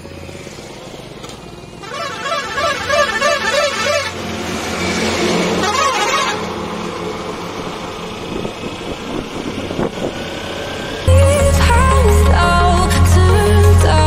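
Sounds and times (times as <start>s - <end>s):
motorcycle engine: 0.0s - 14.0s
warbling vehicle horn: 1.8s - 4.4s, 5.5s - 6.6s
wind noise: 8.1s - 11.0s
music with heavy bass: 11.1s - 14.0s.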